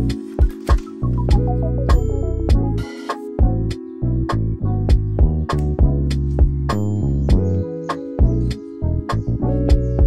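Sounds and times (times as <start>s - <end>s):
drum beat: 0.4s - 2.8s
deep bass line: 1.1s - 2.8s, 3.4s - 7.6s.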